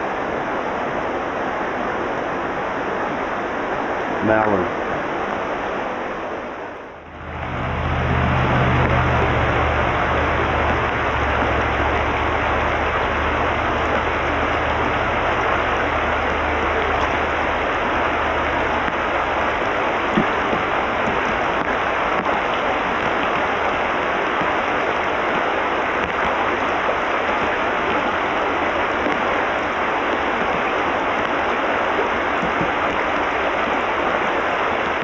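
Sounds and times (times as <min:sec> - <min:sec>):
water rushing over rocks: 0:00.0 - 0:35.0
low rumble: 0:06.7 - 0:30.7.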